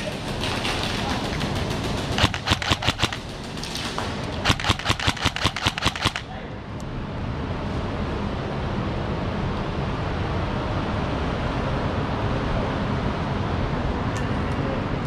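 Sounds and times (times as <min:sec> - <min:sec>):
airsoft gun firing bursts: 0:00.0 - 0:06.3.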